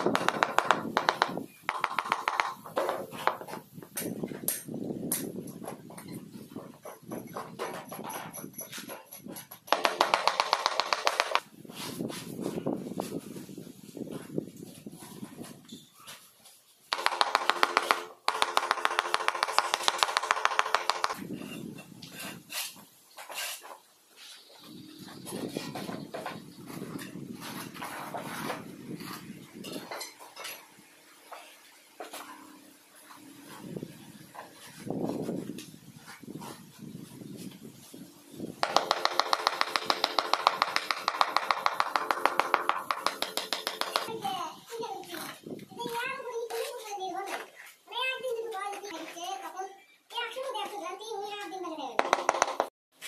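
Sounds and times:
wooden handle tapping floor tile: 0.0s - 3.4s, 9.7s - 11.4s, 16.9s - 21.2s, 38.6s - 44.2s, 52.0s - 52.7s.

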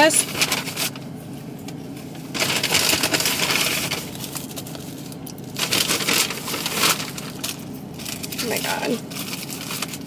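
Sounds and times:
plastic bag crinkling: 2.3s - 10.0s.

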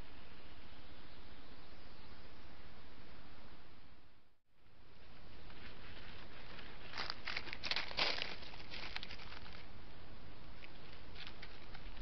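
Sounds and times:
leaves crackling under paws: 5.5s - 9.7s.

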